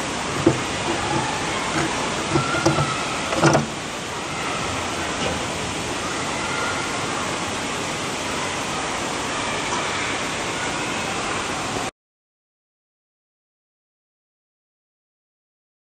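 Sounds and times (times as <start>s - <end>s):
churning pool water: 0.0s - 11.9s
metal ledge knocking: 0.4s - 3.7s.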